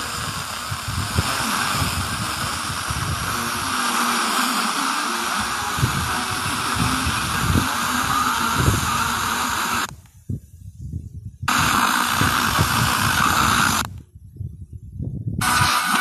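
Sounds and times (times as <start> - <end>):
radio static: 0.0 - 9.9, 11.5 - 13.9, 15.4 - 16.0
faint muffled radio signal: 3.4 - 10.0.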